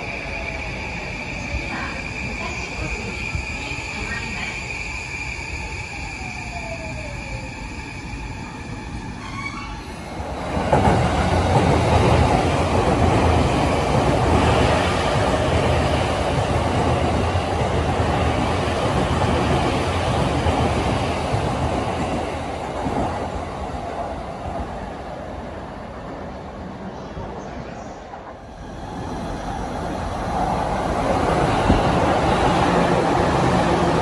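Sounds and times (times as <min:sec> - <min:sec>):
train wheels rumbling on rails: 0:00.0 - 0:34.0.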